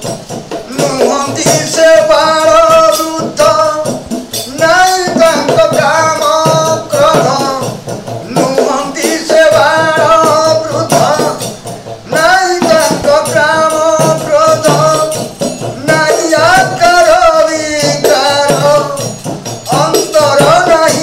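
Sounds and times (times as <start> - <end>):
frame drum beat and jingle: 0.0 - 21.0
man singing: 0.6 - 21.0.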